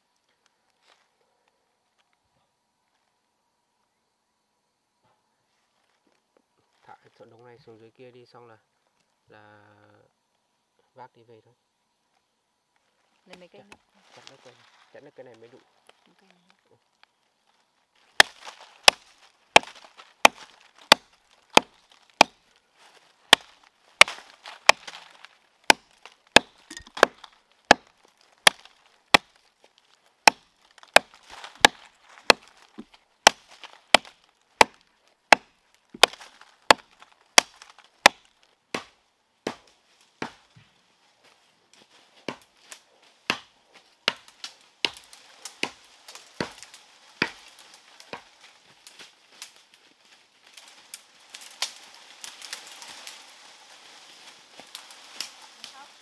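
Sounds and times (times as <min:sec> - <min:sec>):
axe chopping wood: 0:18.2 - 0:22.4, 0:23.3 - 0:29.4, 0:30.2 - 0:40.5, 0:42.2 - 0:42.5, 0:43.2 - 0:48.3.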